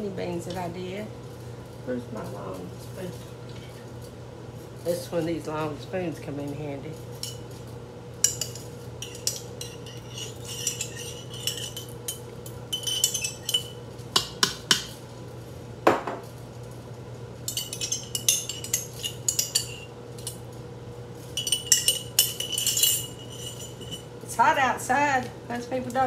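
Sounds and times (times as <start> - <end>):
spoon scraping in glass jar: 8.3 - 13.8, 17.5 - 20.4, 21.4 - 24.1.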